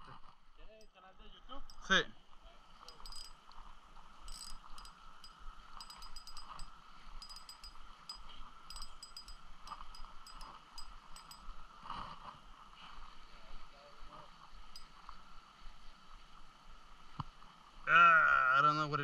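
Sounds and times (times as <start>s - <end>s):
metallic clicks and ticks: 1.6s - 1.9s, 2.9s - 3.6s, 4.2s - 11.5s
fishing reel cranking: 2.9s - 3.6s, 4.2s - 11.5s.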